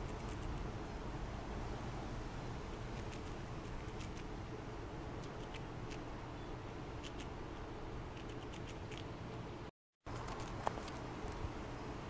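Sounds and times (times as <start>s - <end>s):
squirrel cracking seeds: 2.9s - 4.3s, 5.2s - 6.1s, 7.0s - 7.4s, 8.1s - 9.1s.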